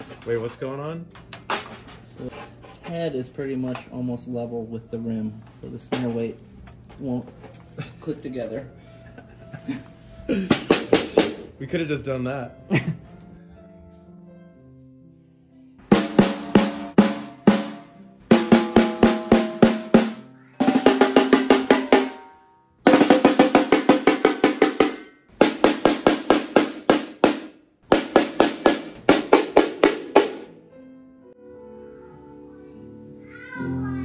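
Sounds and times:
faint background music: 0:00.0 - 0:34.0
snare drum strokes and rolls: 0:15.9 - 0:22.2, 0:22.9 - 0:30.5.

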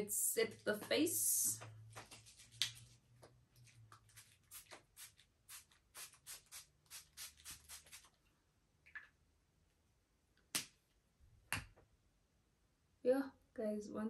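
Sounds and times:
spray bottle misting: 0:04.2 - 0:08.1.

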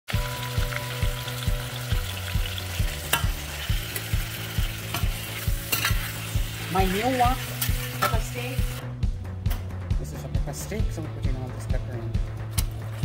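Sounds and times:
meat sizzling in a wok: 0:00.1 - 0:08.8
background music with low beat: 0:00.1 - 0:13.0
metal spoon scraping pan: 0:04.9 - 0:08.5.

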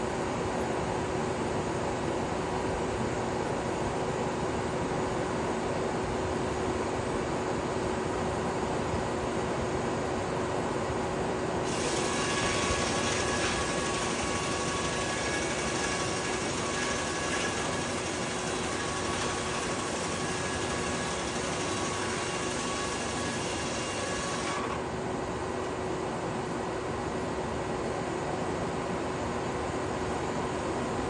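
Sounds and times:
sawmill machinery humming: 0:11.6 - 0:27.3.

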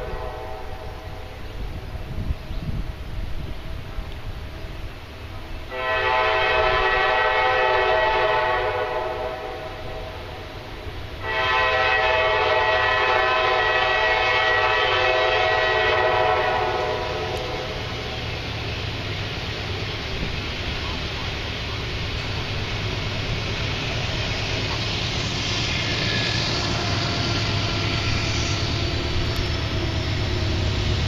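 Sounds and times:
locomotive air horn blasts: 0:00.0 - 0:01.2, 0:05.7 - 0:10.3, 0:11.2 - 0:17.9
low rumble of train: 0:00.0 - 0:31.0.

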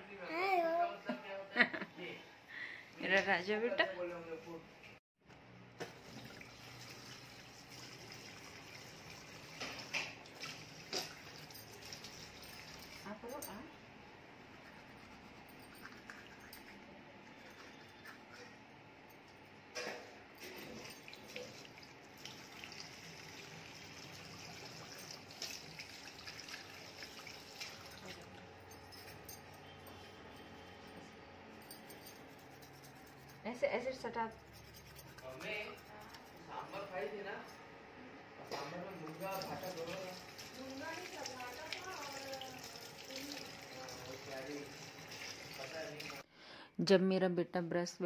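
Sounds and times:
tap water running into basin: 0:05.8 - 0:13.1, 0:20.7 - 0:28.5, 0:39.0 - 0:46.2.

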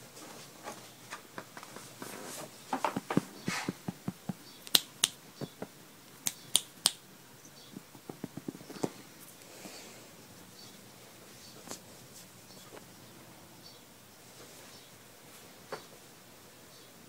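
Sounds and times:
fingers snapping: 0:03.5 - 0:07.0.

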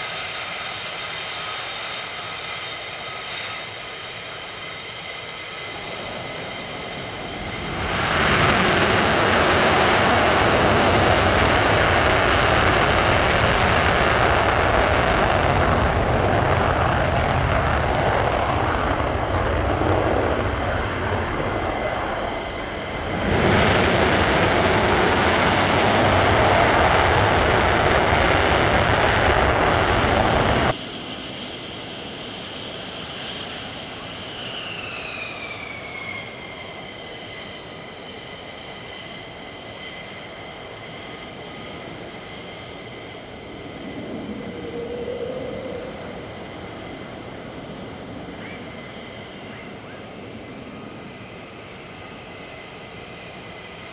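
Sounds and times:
jet engines whining: 0:00.0 - 0:53.9
jet roar on takeoff: 0:00.0 - 0:53.9.

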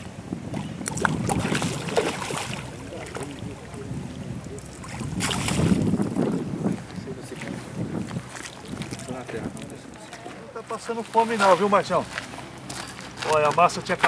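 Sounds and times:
wind buffeting microphone: 0:00.0 - 0:10.1
water splashing and sloshing: 0:00.0 - 0:14.0
fish thrashing at surface: 0:00.9 - 0:03.4, 0:04.8 - 0:05.9.

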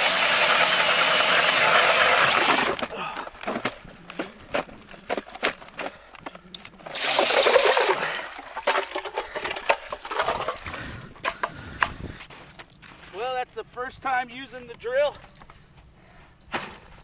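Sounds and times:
ice auger crunching ice: 0:00.0 - 0:11.1
rushing scraping auger: 0:00.0 - 0:11.4.

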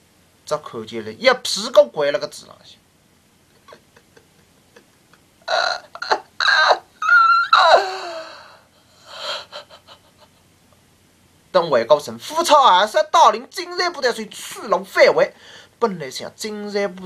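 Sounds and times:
man wailing and sobbing: 0:03.6 - 0:10.4.

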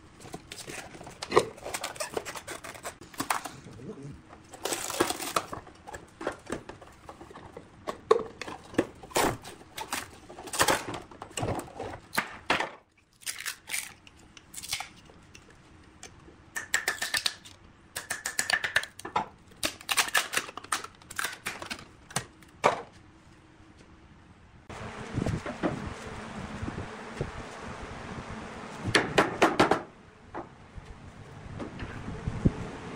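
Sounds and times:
stiff plastic cracking and scraping: 0:00.2 - 0:15.0, 0:19.0 - 0:22.6.

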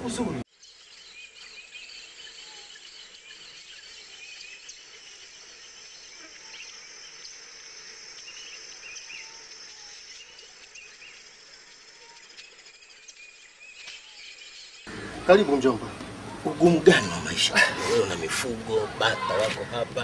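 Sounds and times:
high-pitched insect drone: 0:03.4 - 0:15.0.

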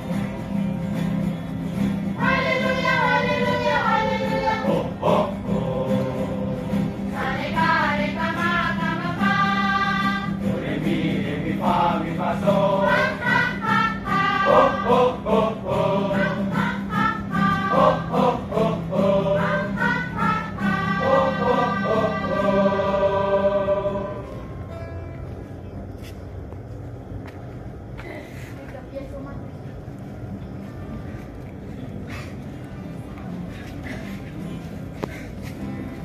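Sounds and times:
choir singing: 0:02.2 - 0:24.6.

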